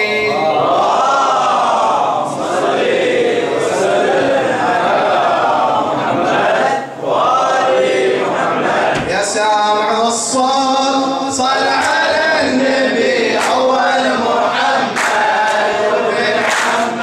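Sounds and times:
man singing through microphone: 0.0 - 0.8, 8.9 - 17.0.

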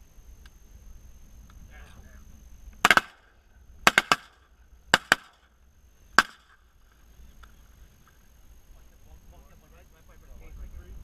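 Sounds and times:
shotgun blasts: 2.8 - 5.5, 6.2 - 6.6.

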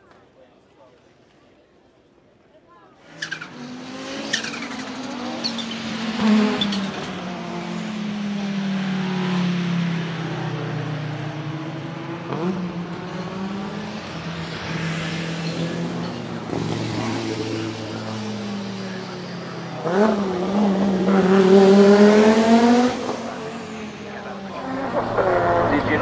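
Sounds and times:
race car engine accelerating: 3.0 - 26.0.

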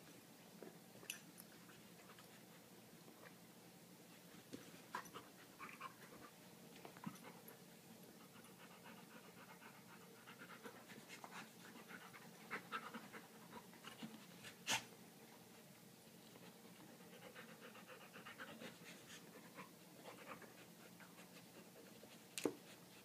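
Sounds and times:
dog panting: 8.2 - 14.6, 16.4 - 23.0.

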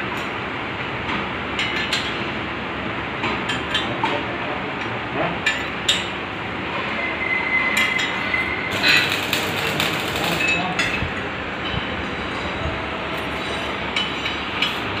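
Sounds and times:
workshop noise: 3.2 - 15.0
spanners clinking on metal: 8.7 - 11.0.

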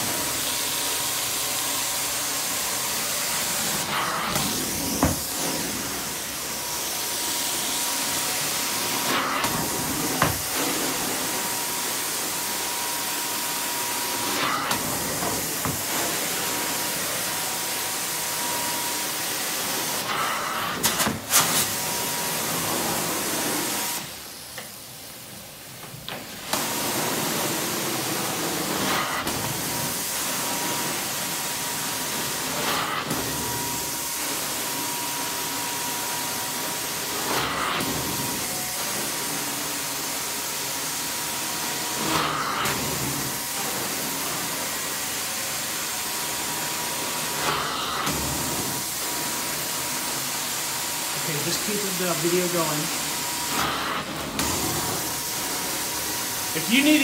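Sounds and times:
steam cleaner vacuum hiss: 0.0 - 57.0.

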